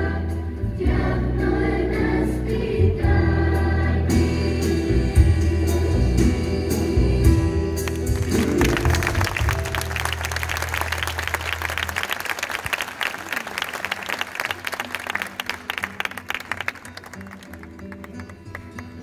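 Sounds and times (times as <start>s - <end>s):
audience applauding: 7.8s - 19.0s.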